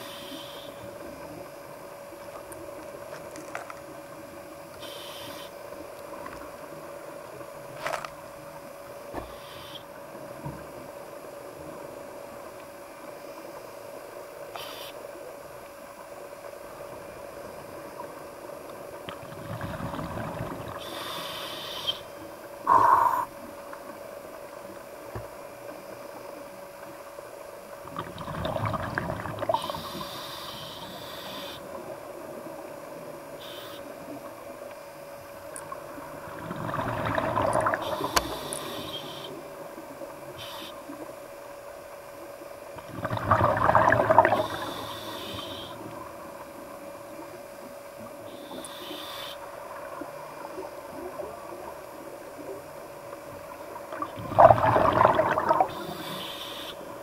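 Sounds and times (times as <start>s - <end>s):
exhaled bubbles rumbling: 19.2s - 20.9s, 27.8s - 29.9s, 35.6s - 38.4s, 42.7s - 44.8s, 49.6s - 56.0s
breath hissing through regulator: 22.7s - 23.3s, 37.6s - 39.3s, 44.1s - 45.8s, 54.4s - 56.8s.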